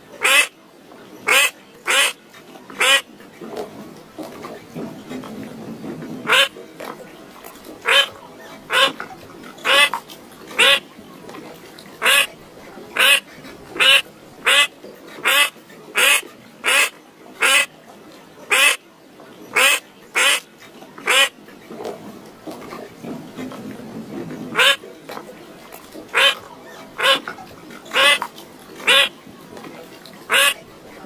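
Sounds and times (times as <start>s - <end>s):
bird giving harsh calls: 13.8s - 17.7s, 24.6s - 24.8s, 26.1s - 26.4s, 27.0s - 27.2s, 28.8s - 29.1s, 30.3s - 30.6s.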